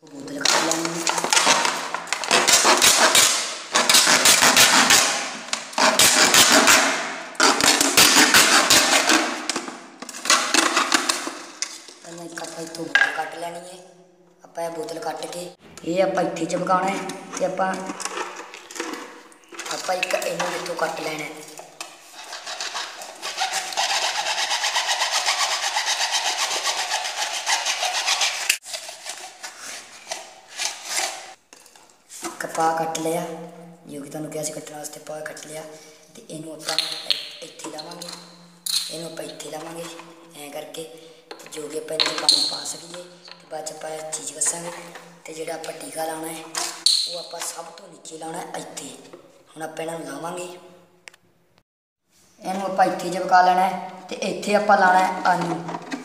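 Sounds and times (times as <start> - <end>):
knife cutting plastic bottle: 0.4 - 11.9, 16.9 - 31.8.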